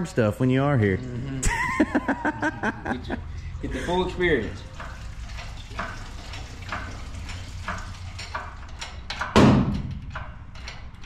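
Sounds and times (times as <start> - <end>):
loud clunk: 5.8 - 10.8.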